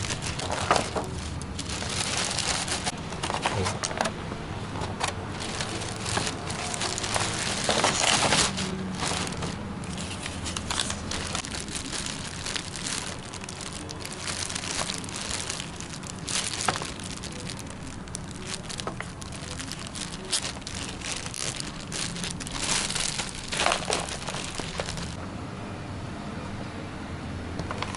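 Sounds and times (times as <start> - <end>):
plastic bag crinkling: 0.0 - 4.1, 4.9 - 25.2.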